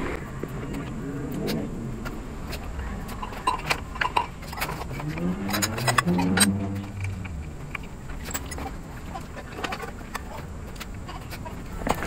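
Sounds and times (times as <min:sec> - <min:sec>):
passing engine hum: 0:00.0 - 0:11.7.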